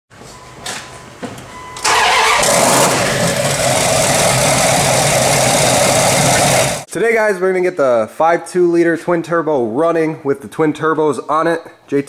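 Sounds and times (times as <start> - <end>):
engine starting and running loudly: 1.8 - 6.9.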